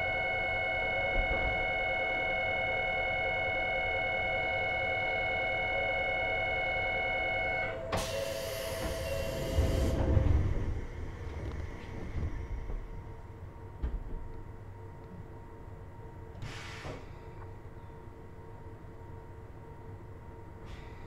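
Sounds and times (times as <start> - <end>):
electronic tone in train: 0.0 - 21.0
compressed air hiss: 16.4 - 17.0.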